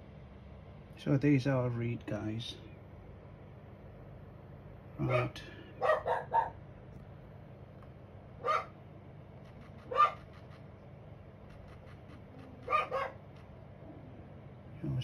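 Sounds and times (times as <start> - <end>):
low steady hum: 0.0 - 15.0
dog barking: 5.0 - 6.6, 8.4 - 8.8, 9.9 - 10.3, 12.6 - 13.2.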